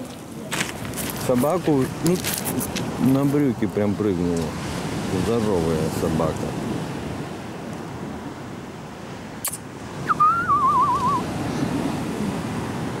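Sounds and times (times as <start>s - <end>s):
sea surf on pebble beach: 0.0s - 13.0s
sharp click: 9.4s - 9.6s
person whistling: 10.0s - 11.3s.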